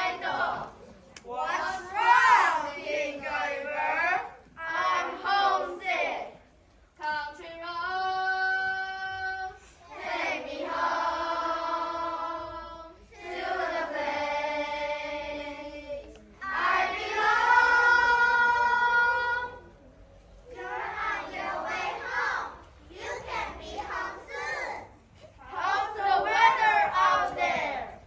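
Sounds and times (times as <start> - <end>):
children singing in unison: 0.0 - 0.9, 7.4 - 19.8, 20.5 - 28.0.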